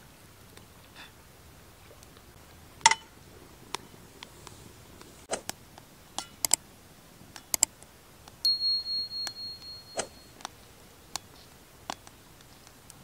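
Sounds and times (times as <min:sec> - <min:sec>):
high ringing notification chime: 0:08.5 - 0:10.4.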